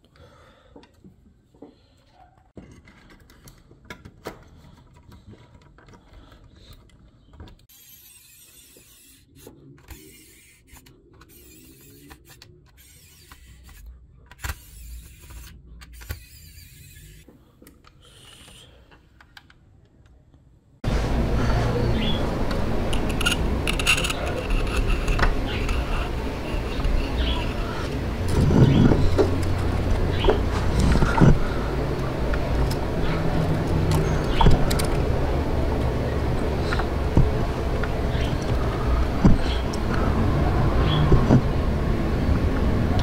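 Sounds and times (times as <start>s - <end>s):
model car parts clicking: 2.6s - 20.5s, 22.5s - 35.1s
screwdriver driving screws: 7.6s - 17.3s, 22.9s - 27.7s.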